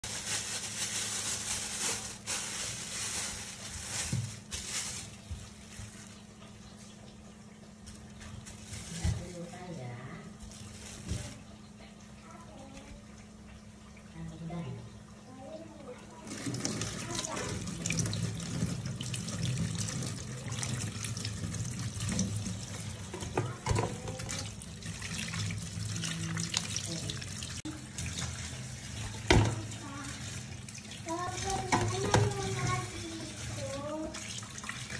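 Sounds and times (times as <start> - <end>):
plastic bag crinkling: 0.0 - 6.5, 7.9 - 9.7, 10.4 - 11.5, 31.0 - 34.2
hands rubbing and rinsing meat: 0.0 - 11.7, 15.7 - 34.9
tap water running into sink: 10.3 - 34.9.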